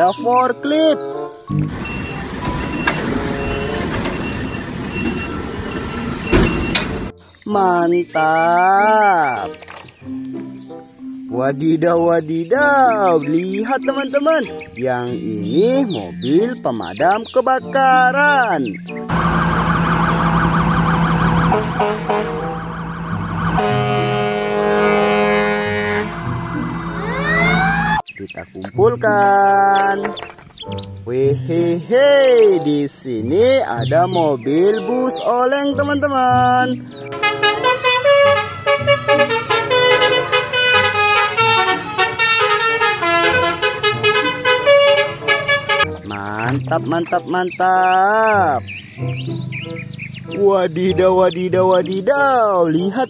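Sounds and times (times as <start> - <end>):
fire engine siren wailing: 1.6 - 7.1, 19.1 - 28.0, 37.2 - 45.9
fire engine horn blasts: 19.1 - 28.0, 37.1 - 45.9.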